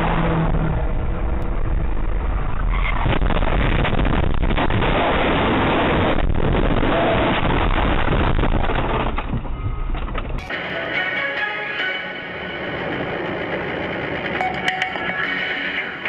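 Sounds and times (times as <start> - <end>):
road noise inside car: 0.0 - 16.0
car grinding and clattering: 8.6 - 10.5.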